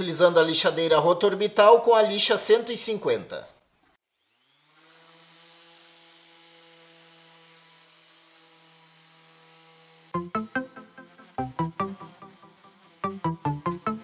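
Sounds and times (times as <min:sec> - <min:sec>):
orbital sander humming: 0:08.4 - 0:14.0
music: 0:10.1 - 0:14.0.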